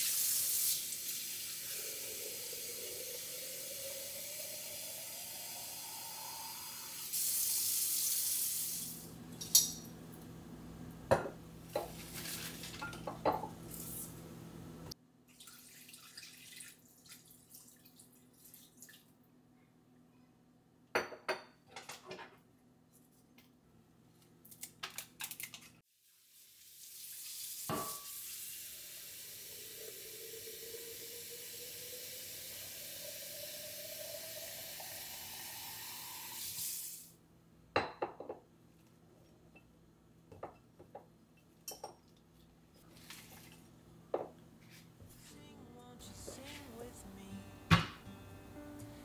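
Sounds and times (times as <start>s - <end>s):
faucet filling glass vase: 0.0s - 7.2s, 27.7s - 36.6s.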